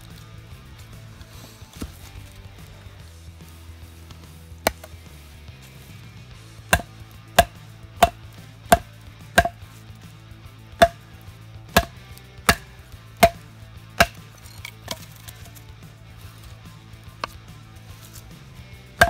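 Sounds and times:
wood round splitting: 0:04.1 - 0:05.1, 0:06.6 - 0:09.8, 0:10.8 - 0:15.6, 0:16.4 - 0:18.3
baton knocking on knife spine: 0:04.7 - 0:05.0, 0:06.7 - 0:09.6, 0:10.8 - 0:11.0, 0:11.8 - 0:13.4, 0:14.0 - 0:14.3.

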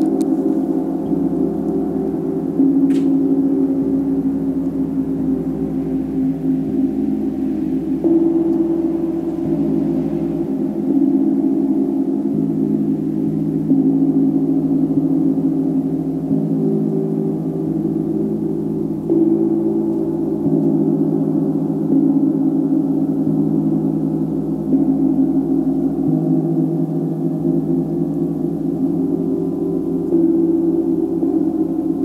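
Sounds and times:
layered ringing drone: 0:00.0 - 0:32.0.

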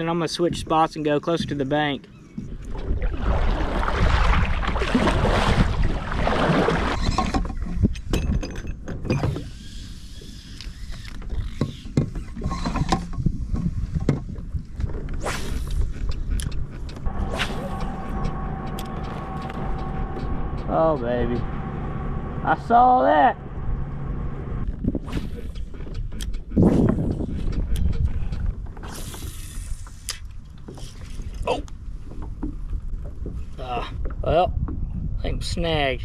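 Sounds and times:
rushing noise: 0:17.1 - 0:24.7.

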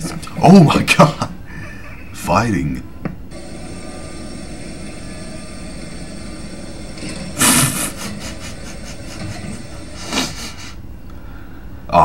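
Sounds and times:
robot vacuum motor hum: 0:03.3 - 0:10.7.

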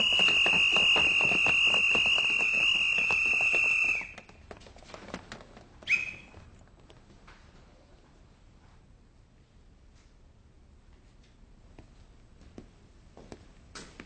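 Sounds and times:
footsteps and knocks: 0:00.0 - 0:07.8, 0:11.0 - 0:14.0.

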